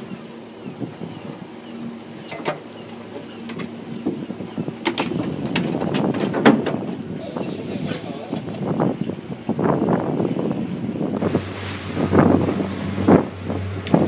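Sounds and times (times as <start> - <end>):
boat engine humming: 0.0 - 14.0
water noise: 0.0 - 14.0
wind: 0.0 - 14.0
sharp knocks and clatters: 4.8 - 7.0.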